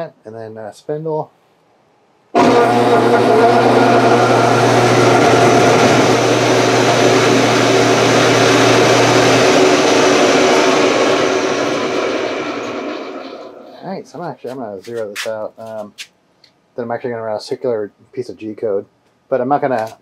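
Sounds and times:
electric motor whirring: 2.4s - 13.6s
low hum: 2.4s - 14.2s.

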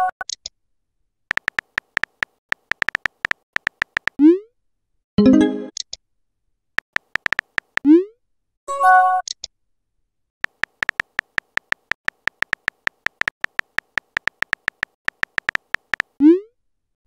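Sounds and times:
synthetic key clicks: 1.3s - 4.2s, 6.8s - 7.9s, 10.4s - 16.2s.

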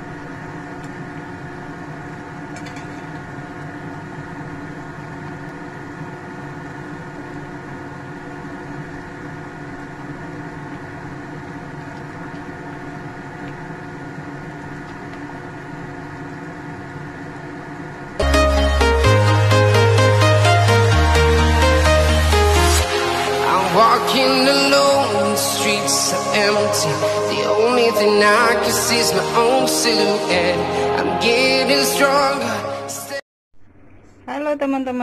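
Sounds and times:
mechanical hum: 0.0s - 20.4s.

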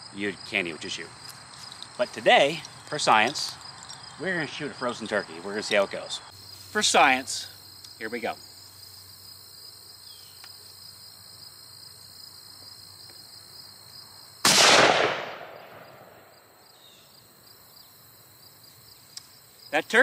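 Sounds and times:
insects chirring: 0.0s - 20.0s
rifle shot: 14.4s - 16.4s.

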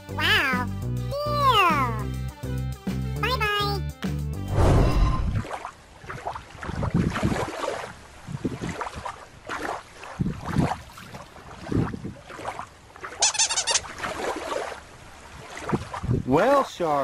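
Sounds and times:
wind buffeting microphone: 4.6s - 9.2s, 10.1s - 12.3s, 15.3s - 16.4s.

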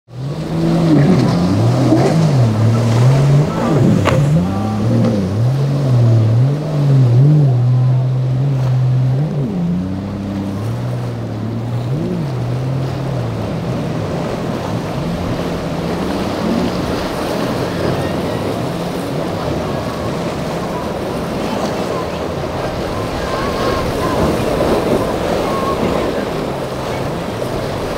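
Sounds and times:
wind: 0.0s - 27.9s
outboard engine running hard: 0.1s - 27.9s
waves breaking and splashing: 0.1s - 27.9s.

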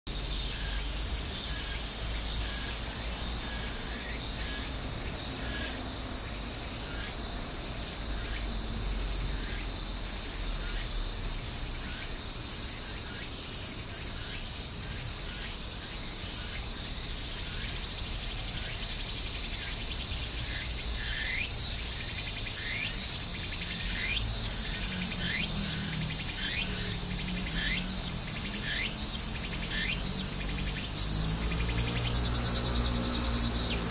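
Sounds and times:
high-pitched insect chorus: 0.1s - 33.9s
birds chirping: 13.9s - 33.9s.

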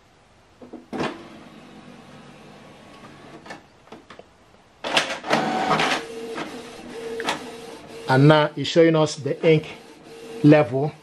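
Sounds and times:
printer mechanical whir: 0.9s - 3.6s, 4.8s - 11.0s
printer clicks: 4.8s - 6.5s, 7.1s - 7.5s.

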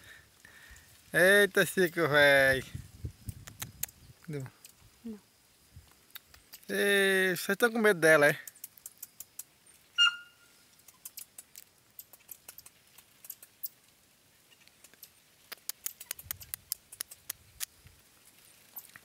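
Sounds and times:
clicks and crackles from dry brush: 3.3s - 4.8s, 5.8s - 6.8s, 8.0s - 9.8s, 10.7s - 19.0s
short high chirp: 10.0s - 10.5s.

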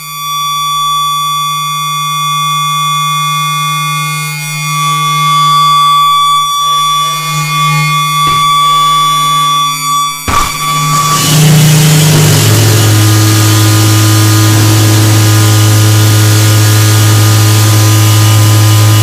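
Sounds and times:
high-pitched sine tones: 0.0s - 19.0s
low electronic drone: 0.0s - 19.0s
sharp noise burst: 5.3s - 19.0s.

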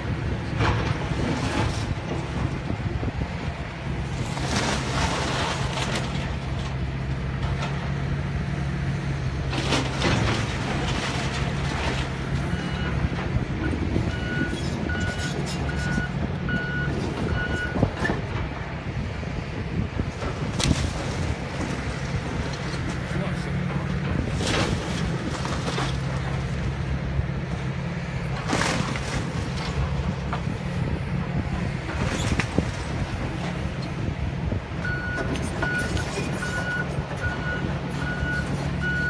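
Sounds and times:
excavator diesel engine running: 0.0s - 39.0s
debris crashing and crunching: 4.0s - 6.8s, 9.4s - 13.2s, 20.1s - 27.0s, 27.6s - 30.5s.

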